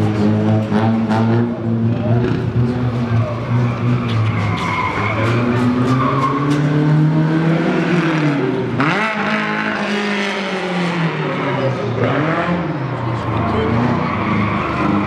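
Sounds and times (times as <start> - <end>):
race car engine revving: 0.0 - 15.0
tyres squealing: 3.0 - 6.8.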